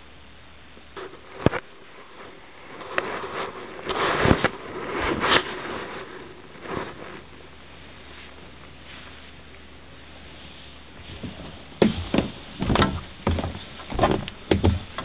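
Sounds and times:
footsteps on a staircase: 11.1 - 15.0.

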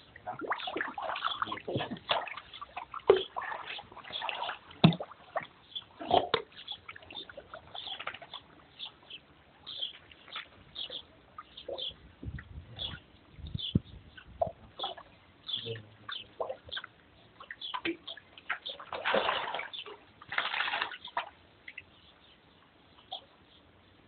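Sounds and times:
dog splashing in water: 0.2 - 8.4, 17.9 - 21.4.

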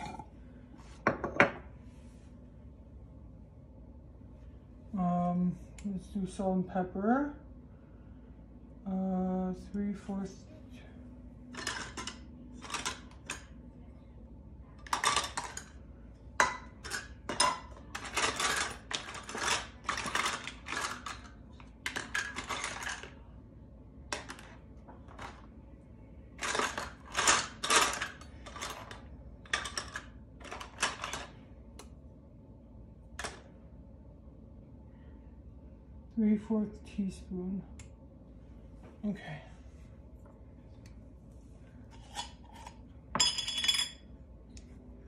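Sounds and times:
measuring spoons clinking and rattling: 42.0 - 44.0.

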